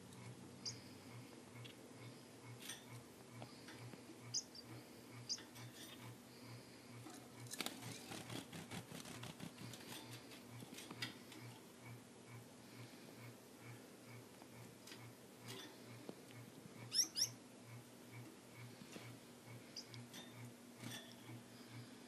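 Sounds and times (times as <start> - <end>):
finches chirping: 0.6 - 1.0, 4.2 - 6.1, 16.8 - 17.4, 19.5 - 20.1
birds fluttering and clicking: 2.5 - 11.7, 14.6 - 17.4, 18.2 - 21.9.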